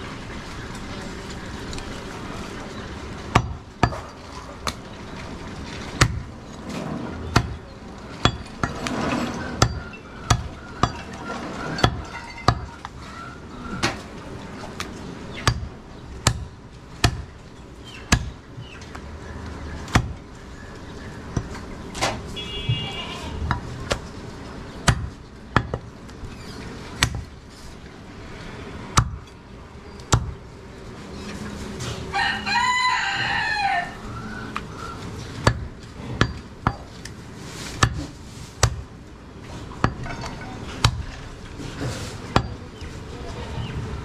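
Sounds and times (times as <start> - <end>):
rooster crowing: 32.1 - 34.5.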